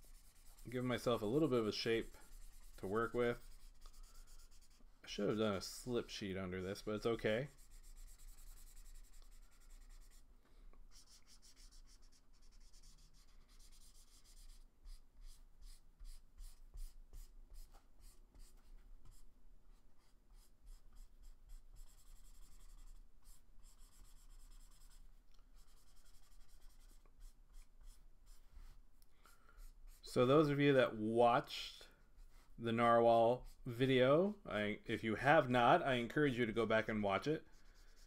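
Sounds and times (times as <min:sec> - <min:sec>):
felt-tip marker rubbing on paper: 0:00.0 - 0:04.8, 0:07.5 - 0:10.2, 0:10.9 - 0:19.2, 0:20.0 - 0:25.0, 0:25.6 - 0:28.8.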